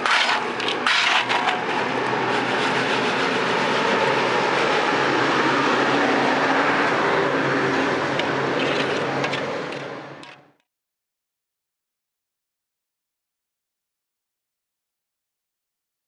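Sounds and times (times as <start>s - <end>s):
chickpeas rattling on metal tray: 0.0s - 1.8s.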